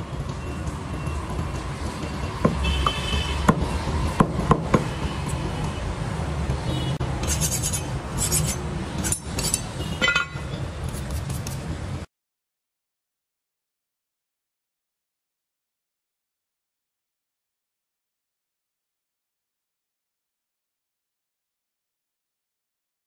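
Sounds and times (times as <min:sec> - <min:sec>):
blade scraping wooden block: 0:07.2 - 0:09.7, 0:10.9 - 0:11.7.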